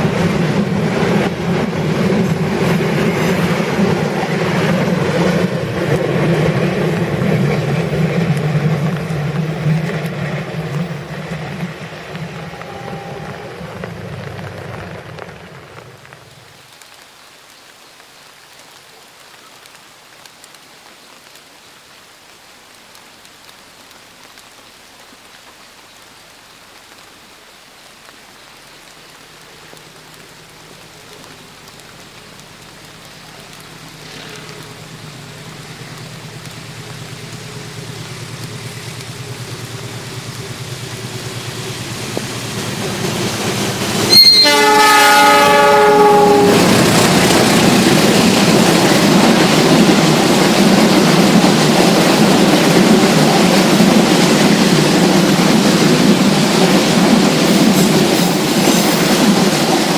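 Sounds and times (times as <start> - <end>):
train wheels clattering on rails: 0.0 - 16.2, 33.6 - 45.0, 46.0 - 59.9
distant train hum: 0.0 - 16.8, 28.1 - 59.9
heavy rain: 0.0 - 59.9.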